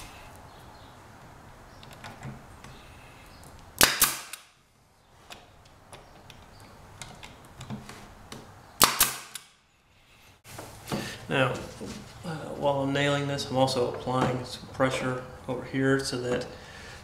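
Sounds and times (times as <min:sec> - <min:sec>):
nail gun firing into wood: 0:03.8 - 0:04.5, 0:08.8 - 0:09.5.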